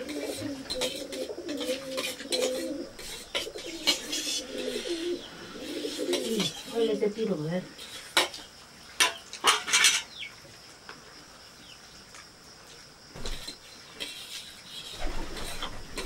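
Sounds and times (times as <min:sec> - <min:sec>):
spoons clinking on steel plates: 0:09.0 - 0:10.1.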